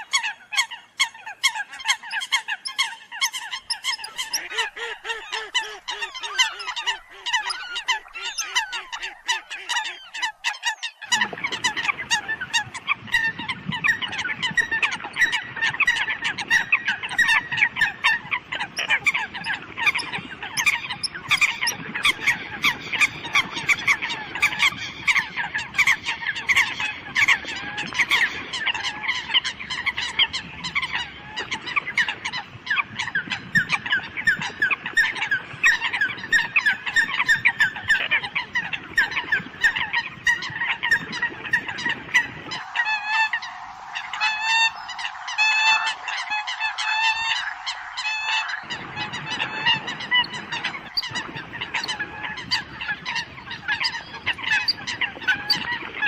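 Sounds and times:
coots honking calls: 39.6s - 55.9s.

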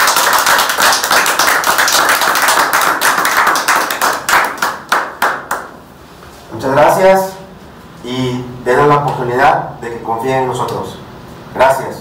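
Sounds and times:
people applauding: 0.0s - 5.7s.

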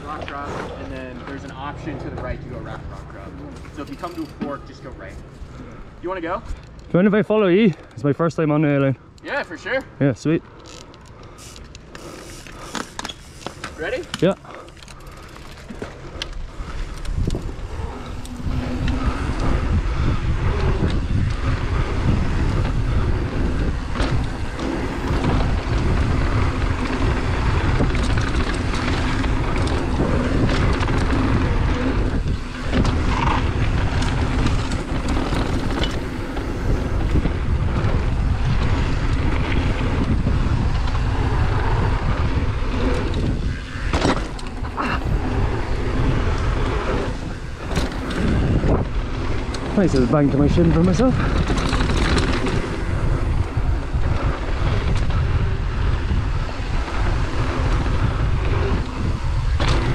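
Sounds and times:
bike rattling and knocking: 0.0s - 5.1s, 10.5s - 59.9s
tyres on dirt: 10.4s - 59.9s
wind buffeting microphone: 13.8s - 59.9s.

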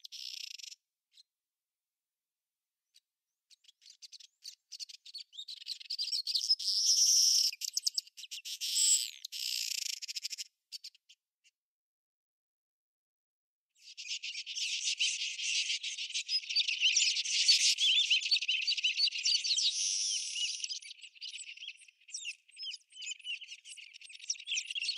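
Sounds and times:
birds chirping and twittering: 0.0s - 0.8s, 3.5s - 11.0s, 13.8s - 24.9s.

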